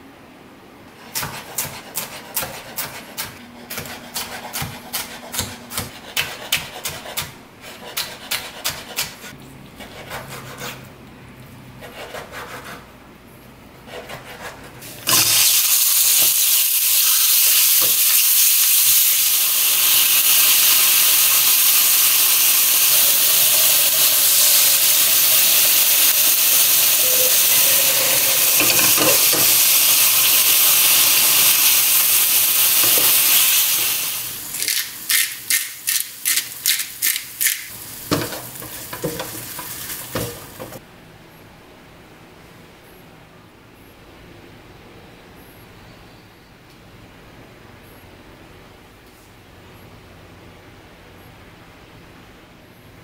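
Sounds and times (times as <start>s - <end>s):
chicken sizzling in hot oil: 15.0s - 35.1s, 36.2s - 40.8s.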